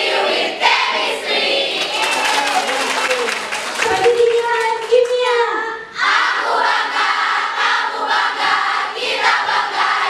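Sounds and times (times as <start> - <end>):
crowd cheering: 1.5 - 5.1
crowd shouting in unison: 6.0 - 10.0.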